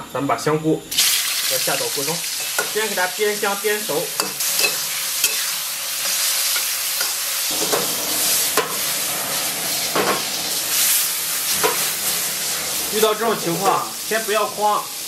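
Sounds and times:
mushrooms sizzling in oil: 0.9 - 15.0
metal spatula scraping wok: 4.1 - 13.1.

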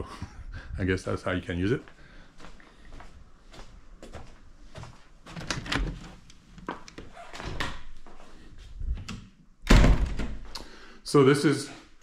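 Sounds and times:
door opening and shutting: 5.3 - 6.2, 7.0 - 8.0, 8.9 - 10.5.

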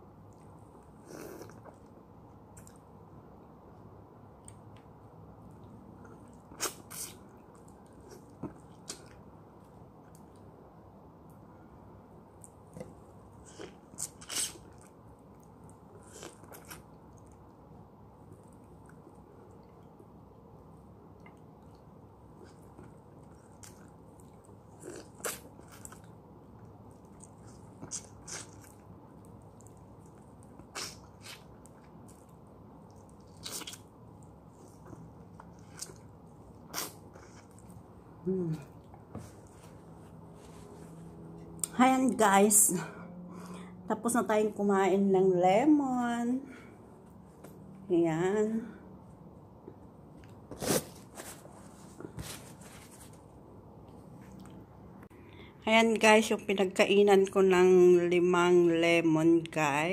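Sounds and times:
person chewing lemon: 12.4 - 17.6, 21.2 - 37.9.

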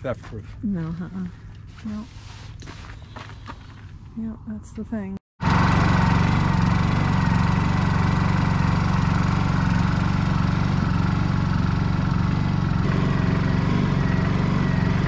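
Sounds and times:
generator running: 5.4 - 15.0.

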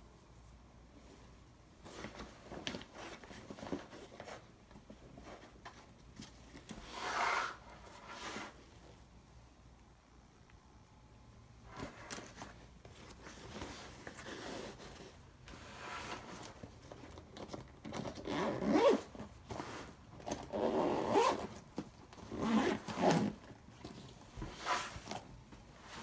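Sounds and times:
backpack zipper being pulled: 6.9 - 8.5, 18.2 - 19.1, 20.4 - 21.5, 22.3 - 23.4
bag fabric rustling: 11.7 - 26.0.

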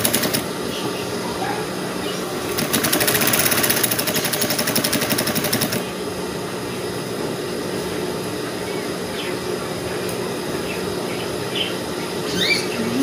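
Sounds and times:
sewing machine clatter: 0.0 - 0.4, 2.5 - 5.8
steady hum: 0.0 - 13.0.

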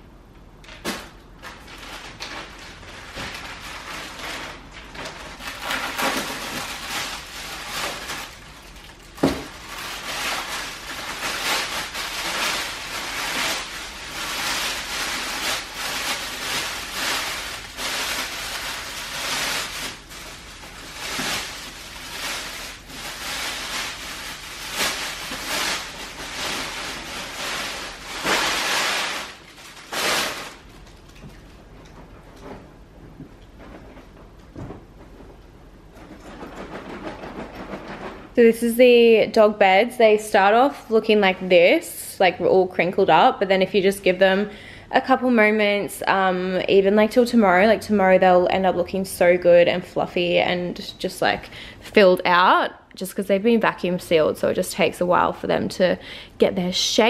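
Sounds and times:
plastic bag rustling: 0.7 - 39.1.

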